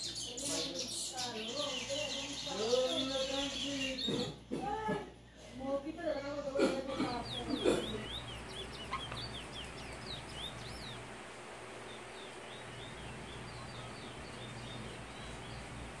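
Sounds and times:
bullfinch chirping: 0.0 - 4.4, 7.0 - 16.0
steady low hum: 6.5 - 16.0.

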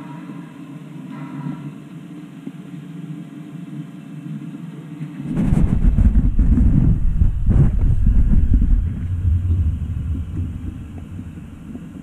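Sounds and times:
model train rumbling on track: 6.9 - 12.0.

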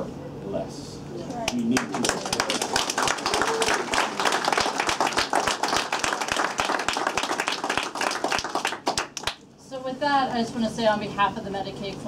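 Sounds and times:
crowd clapping: 1.5 - 9.4.

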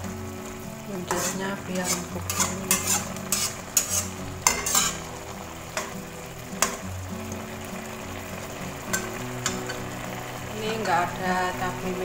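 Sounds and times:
sauce simmering and sizzling in a wok: 0.0 - 12.0
spatula stirring and scraping: 1.0 - 6.0.

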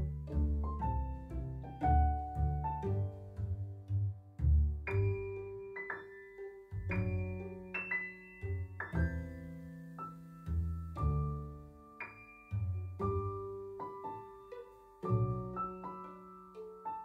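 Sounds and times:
low bass notes: 0.0 - 5.7
piano music: 0.0 - 17.0.

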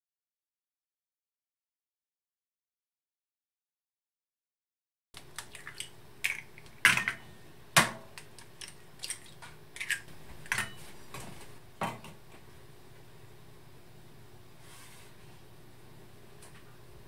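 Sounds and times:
eggs cracked into glass bowl: 8.2 - 10.7.

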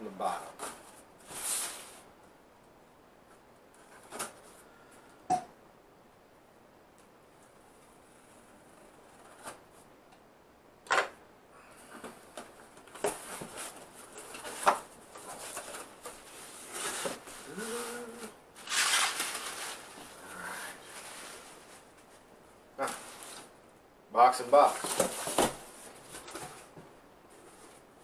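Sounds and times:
cardboard rustling and tearing: 12.8 - 21.9, 24.6 - 26.7
box cutter slitting tape: 18.6 - 19.4.

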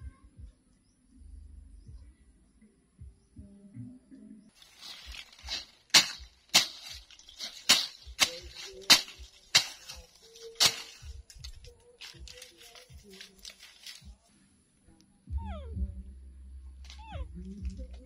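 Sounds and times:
machete chopping branches: 4.6 - 11.6.

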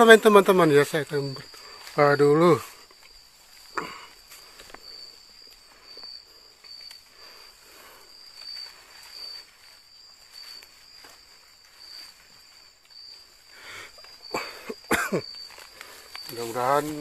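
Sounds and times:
night insects trilling: 0.0 - 17.0
faint soft rustles: 1.1 - 14.3.

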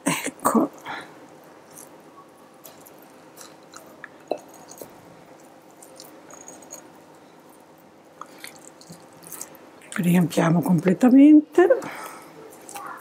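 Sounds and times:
squishing of meat stuffing: 1.5 - 10.2, 12.0 - 13.0.

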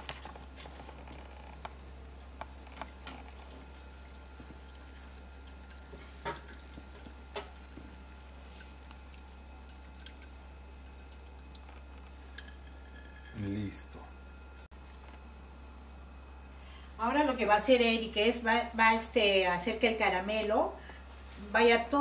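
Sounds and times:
liquid caramel dripping: 1.6 - 13.6.

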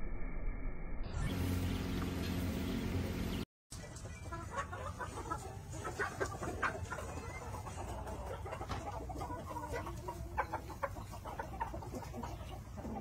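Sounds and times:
chickens clucking: 3.0 - 13.0.

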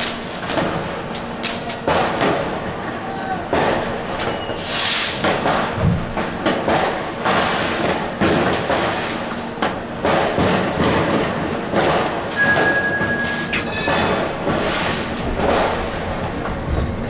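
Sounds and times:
firecrackers banging: 0.0 - 17.0
steady high beep: 12.4 - 13.5.

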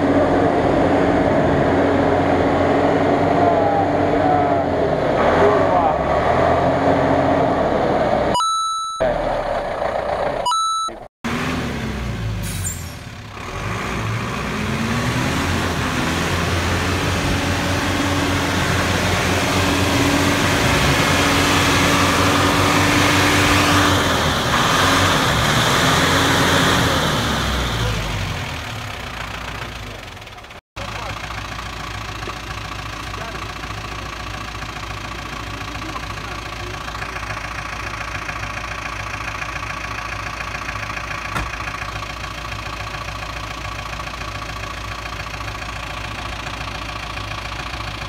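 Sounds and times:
truck engine revving: 0.0 - 8.3, 11.3 - 48.0.

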